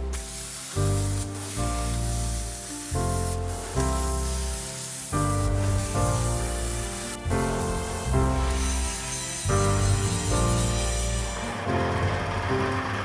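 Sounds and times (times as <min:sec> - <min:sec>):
background music with bass line: 0:00.0 - 0:12.2
angle grinder cutting steel: 0:04.6 - 0:12.1.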